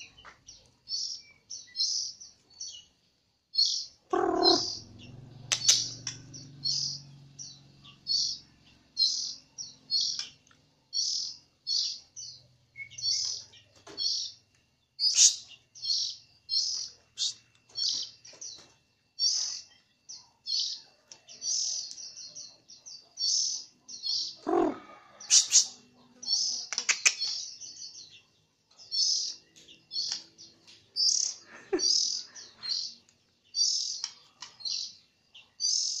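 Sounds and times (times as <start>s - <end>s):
bird singing rapid twitters: 0.0s - 36.0s.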